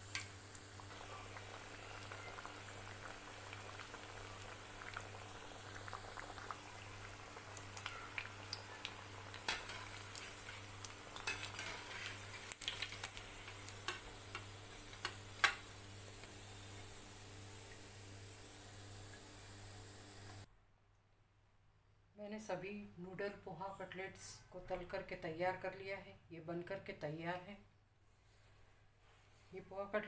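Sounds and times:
oil sizzling with pops: 0.0 - 20.5.

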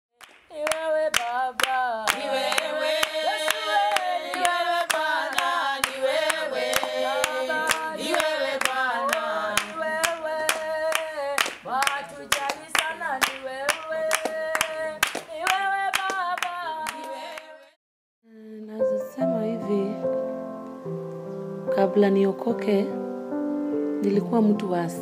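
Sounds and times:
hand-clapping in time: 0.2 - 17.5
women singing together: 0.5 - 17.8.

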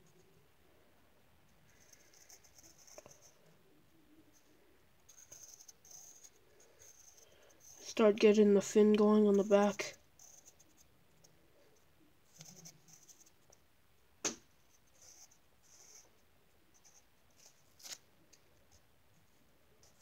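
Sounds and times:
pencil scratching on paper: 1.7 - 3.4, 5.1 - 7.9, 14.8 - 16.1.

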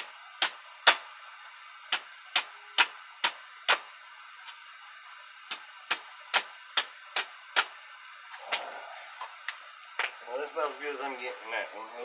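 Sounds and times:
hammer striking steel stake: 0.0 - 1.1, 1.9 - 3.9, 5.5 - 7.8.

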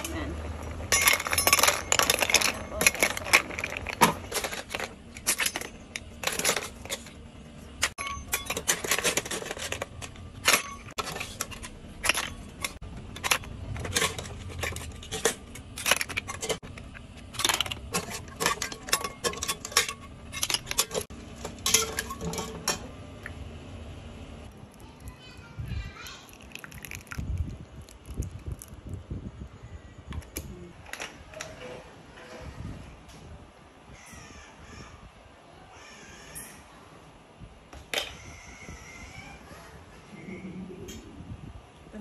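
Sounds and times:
snail shells clinking against metal: 0.1 - 7.0.

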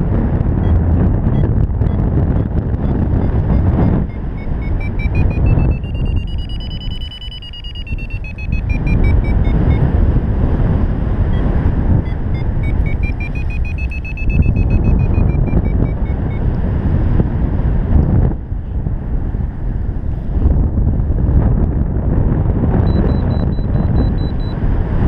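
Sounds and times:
wind buffeting microphone: 0.0 - 25.0
variometer beeping: 0.3 - 10.3, 10.9 - 16.6, 22.8 - 24.6.

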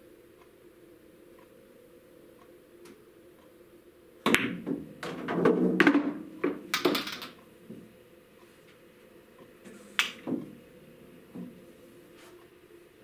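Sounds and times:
pool balls clacking and rolling: 4.2 - 7.9, 9.6 - 11.6
cue stick striking ball: 4.3 - 7.4.

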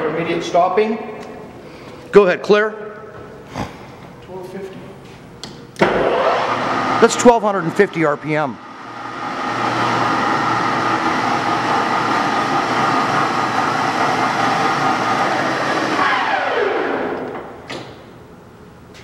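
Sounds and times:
lathe spindle whine: 5.8 - 7.9, 8.6 - 17.4.

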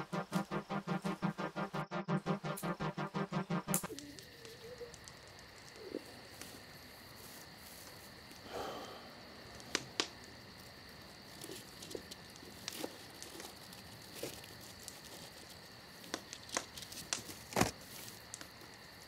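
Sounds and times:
campfire crackling: 3.1 - 19.0
sharp pops of fire: 9.5 - 10.3.

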